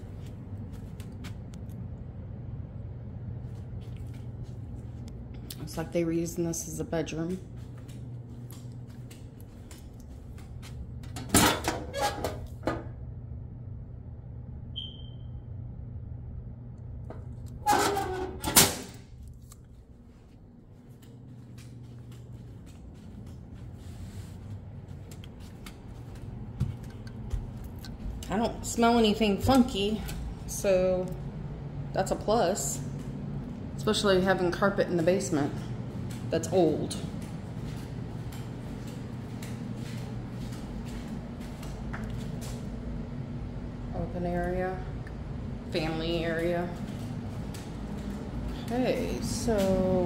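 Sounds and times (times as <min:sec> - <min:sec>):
footsteps on concrete floor: 0:00.0 - 0:01.5, 0:07.4 - 0:11.2, 0:19.2 - 0:28.3, 0:35.0 - 0:42.8, 0:46.4 - 0:50.0
steady low hum: 0:00.0 - 0:50.0
metal door scraping shut: 0:17.6 - 0:19.0.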